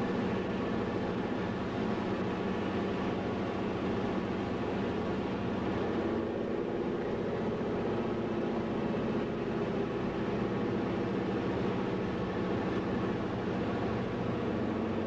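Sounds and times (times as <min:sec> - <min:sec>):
aircraft engine droning: 0:00.0 - 0:15.0.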